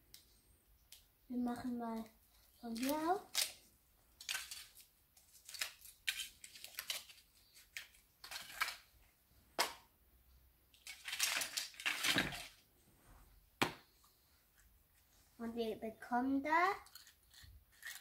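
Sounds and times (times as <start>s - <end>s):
foil wrapper crinkling and tearing: 2.6s - 3.6s, 4.2s - 8.8s, 10.8s - 12.6s, 16.9s - 18.0s.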